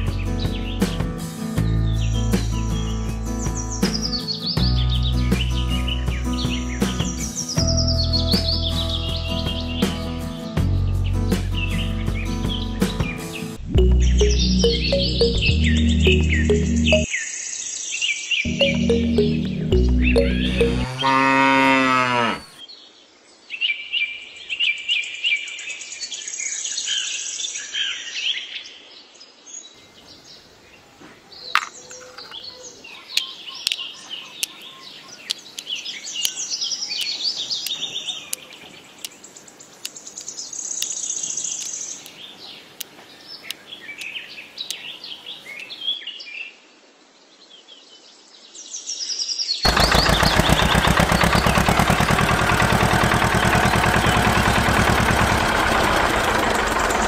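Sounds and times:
birds chirping: 0:01.8 - 0:10.1, 0:11.0 - 0:17.5, 0:18.4 - 0:22.7, 0:29.8 - 0:46.0, 0:49.6 - 0:57.0
tractor engine running: 0:18.5 - 0:20.9, 0:49.7 - 0:57.0
cow mooing: 0:20.2 - 0:22.6.

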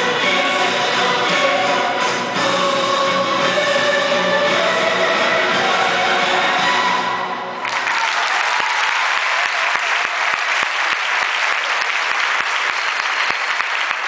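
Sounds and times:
dance music: 0:00.0 - 0:07.6
audience applauding: 0:07.6 - 0:14.0.

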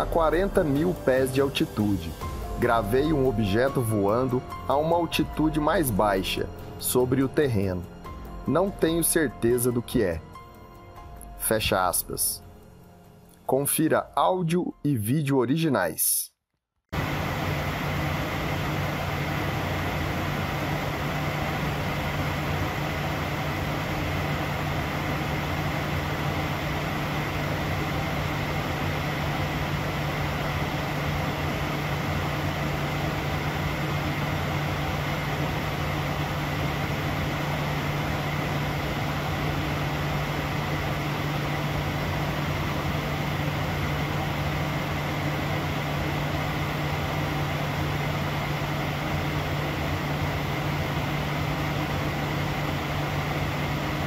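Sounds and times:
faint high whine: 0:00.0 - 0:10.1
low hum: 0:00.0 - 0:13.1, 0:17.0 - 0:54.0
rush of air in cockpit: 0:17.0 - 0:54.0.

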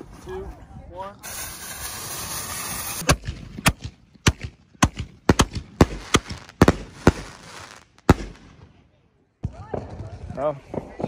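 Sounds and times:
fireworks bangs: 0:01.2 - 0:08.8.

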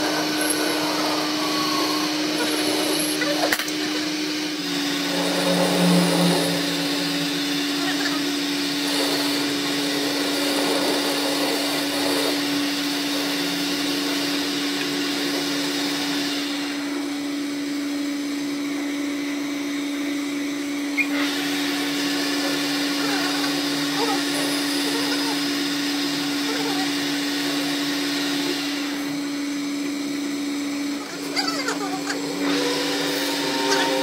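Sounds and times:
tool cutting metal hiss: 0:00.0 - 0:04.0, 0:04.6 - 0:08.2, 0:32.3 - 0:34.0
lathe motor hum: 0:00.0 - 0:34.0.

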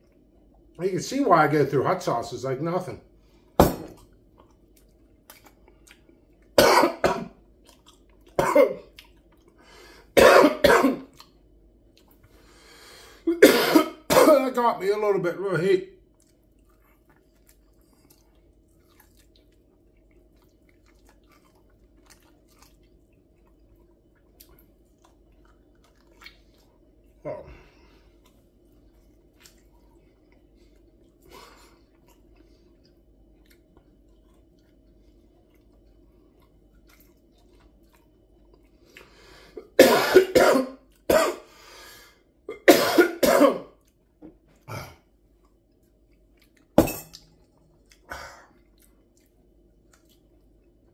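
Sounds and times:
faint chewing: 0:03.2 - 0:06.6, 0:07.3 - 0:10.2, 0:11.0 - 0:12.8, 0:16.0 - 0:39.8, 0:43.7 - 0:50.9
man coughing hard: 0:06.6 - 0:07.4, 0:08.4 - 0:08.9, 0:10.2 - 0:11.1, 0:13.3 - 0:14.6, 0:39.6 - 0:41.5, 0:42.5 - 0:43.7.

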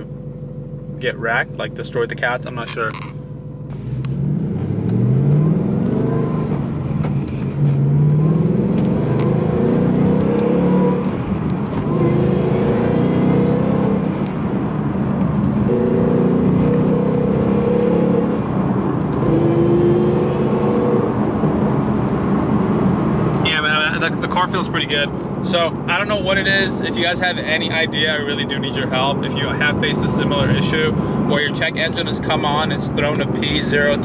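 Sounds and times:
car engine accelerating through gears: 0:03.6 - 0:26.8.

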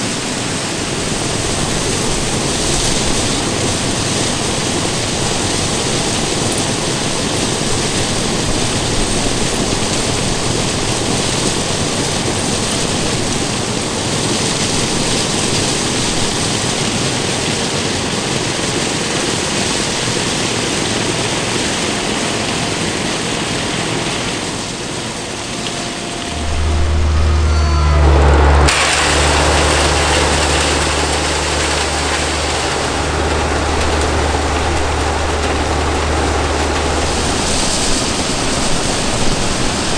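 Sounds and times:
low diesel engine drone: 0:00.0 - 0:17.1, 0:18.4 - 0:39.9.

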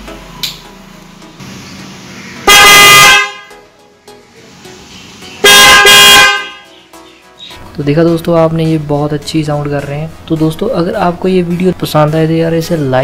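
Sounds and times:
motorcycle horn blasts: 0:02.4 - 0:03.6, 0:05.4 - 0:06.7.

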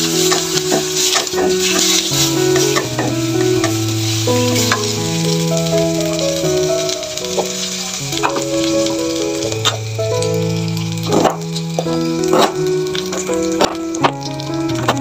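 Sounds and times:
background melody: 0:00.0 - 0:15.0
food sizzling in hot oil: 0:00.0 - 0:15.0
spatula scraping a wok: 0:00.1 - 0:04.9.

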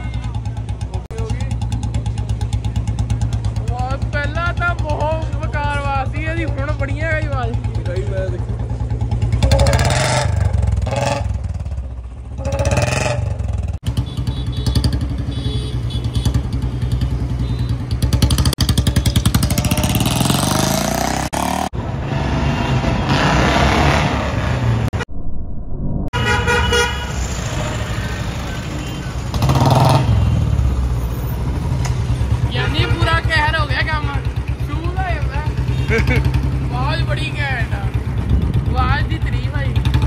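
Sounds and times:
vehicle horns: 0:13.9 - 0:18.1, 0:26.1 - 0:30.4, 0:32.4 - 0:33.5.

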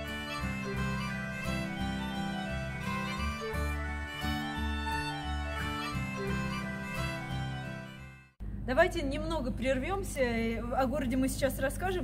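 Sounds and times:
instrumental background music: 0:00.0 - 0:08.4.

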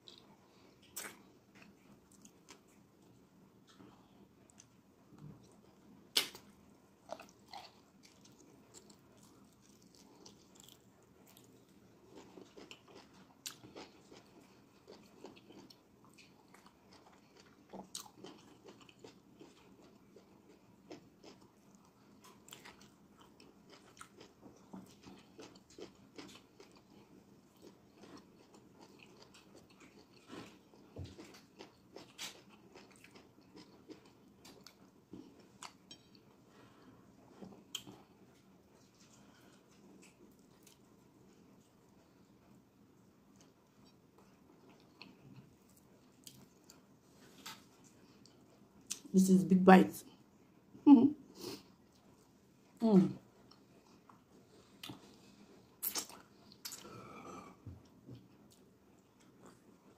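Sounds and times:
wet chewing mouth clicks: 0:55.8 - 0:56.9.

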